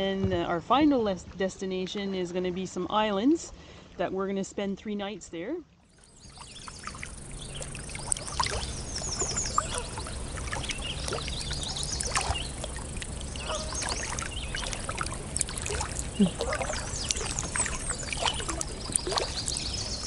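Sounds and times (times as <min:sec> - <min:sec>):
water lapping around kayak: 0:00.0 - 0:04.7, 0:05.6 - 0:20.0
birds chirping and singing: 0:06.3 - 0:14.9, 0:16.1 - 0:20.0.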